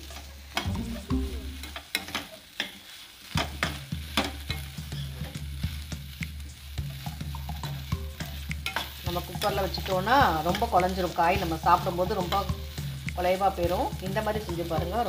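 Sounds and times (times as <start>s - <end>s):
light frying sizzle: 0.0s - 15.0s.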